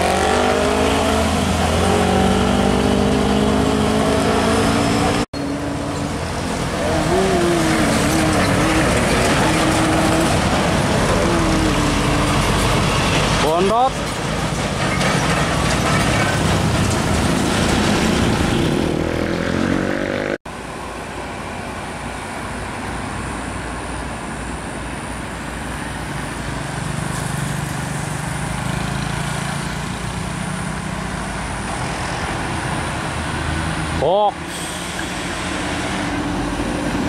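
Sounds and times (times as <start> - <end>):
diesel truck engine driving past: 0.0 - 13.5
road traffic noise: 0.0 - 37.0.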